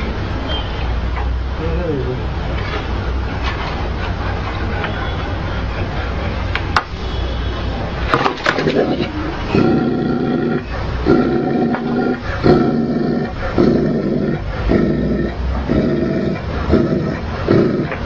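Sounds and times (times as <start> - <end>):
dog growling deeply: 8.5 - 18.0.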